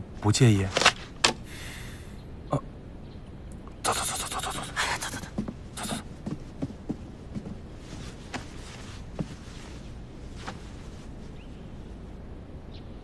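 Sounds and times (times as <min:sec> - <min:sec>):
people rustling and shuffling: 0:03.9 - 0:11.5.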